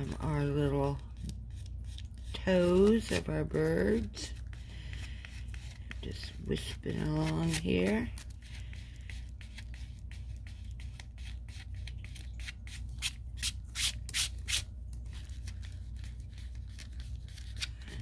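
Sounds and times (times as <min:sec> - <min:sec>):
fingertip rubbing paper: 0:00.8 - 0:14.6.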